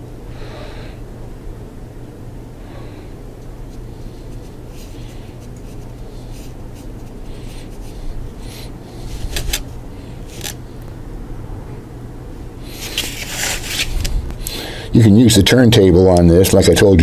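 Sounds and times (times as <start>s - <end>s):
paintbrush scraping filler: 3.7s - 9.6s.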